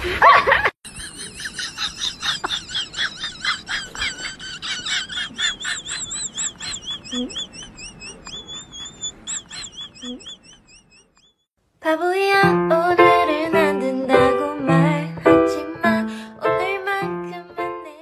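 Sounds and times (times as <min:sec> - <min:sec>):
high-pitched chirps: 0:05.5 - 0:11.5.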